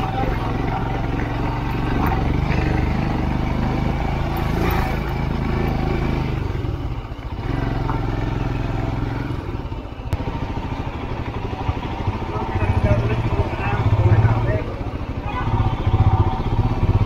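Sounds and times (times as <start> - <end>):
motorcycle engine under load: 0.0 - 17.0.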